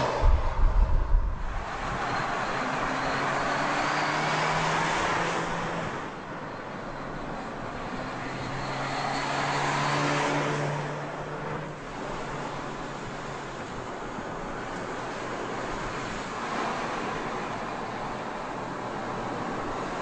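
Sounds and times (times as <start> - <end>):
wind noise: 0.0 - 3.8
car engine hum: 0.0 - 20.0.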